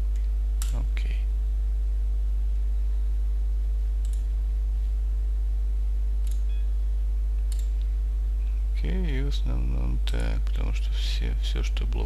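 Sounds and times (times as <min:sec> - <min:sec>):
electrical mains hum: 0:00.0 - 0:12.0
computer mouse clicks: 0:04.0 - 0:04.3, 0:06.2 - 0:06.5, 0:07.5 - 0:07.9.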